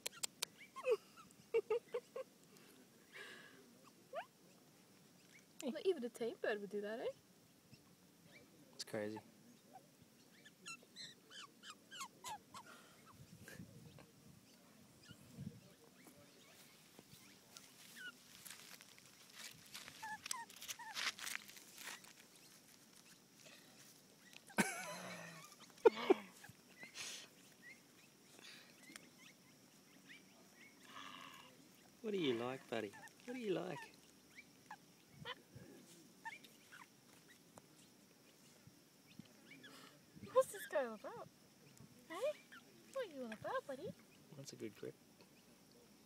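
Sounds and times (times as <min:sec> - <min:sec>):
bird chirping: 0:00.0 - 0:02.3, 0:04.2 - 0:05.6, 0:07.1 - 0:13.2, 0:13.8 - 0:21.0, 0:24.1 - 0:44.4
magpie squeaks and chirps: 0:10.3 - 0:13.2
rustling in grass: 0:15.8 - 0:24.7.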